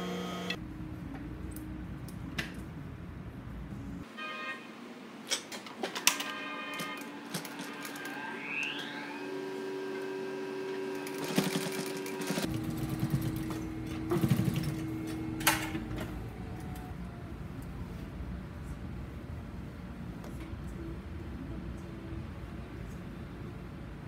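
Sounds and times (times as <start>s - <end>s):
sewing machine motor hum: 0.0s - 0.6s, 9.2s - 16.9s.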